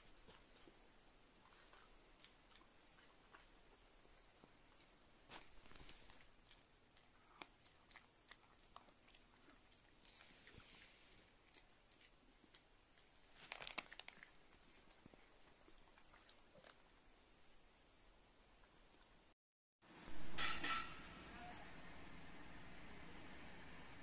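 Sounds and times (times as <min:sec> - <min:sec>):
dog crunching a chew: 0:01.5 - 0:03.8, 0:04.7 - 0:16.9.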